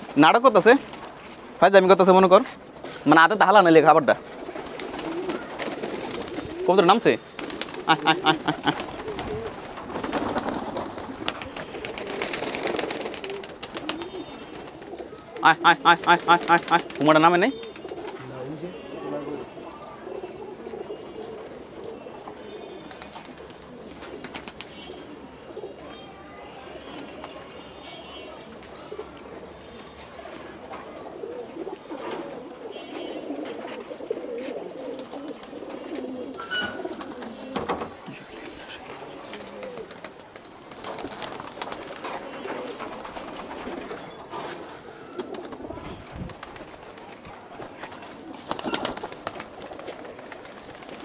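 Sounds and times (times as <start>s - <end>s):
pigeons cooing: 0.0s - 51.0s
pigeon wing flutters: 4.2s - 6.7s, 7.4s - 15.0s, 33.0s - 51.0s
pigeons pecking clicks: 4.3s - 6.7s, 7.4s - 18.2s, 46.3s - 51.0s.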